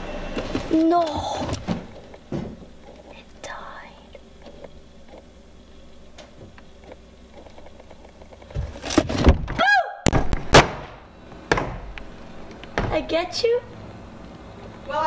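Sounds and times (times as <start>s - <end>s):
person shouting: 9.6s - 10.0s.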